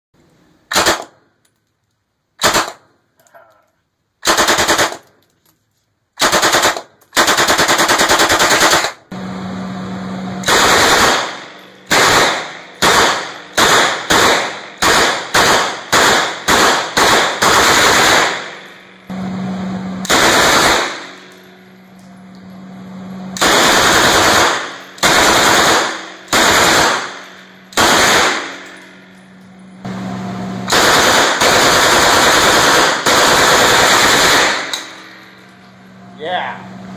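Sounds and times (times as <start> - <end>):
submachine gun bursts: 4.2 - 5.1, 6.2 - 9.0, 10.5 - 18.7, 20.1 - 21.3, 23.4 - 28.8, 30.7 - 35.2
gunfire echoing: 10.4 - 19.0, 20.0 - 21.8, 23.4 - 29.2, 30.7 - 35.4.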